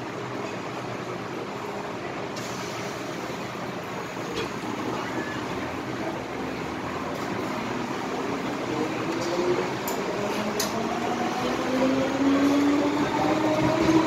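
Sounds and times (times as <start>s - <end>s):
train wheels rumbling: 7.2s - 14.0s.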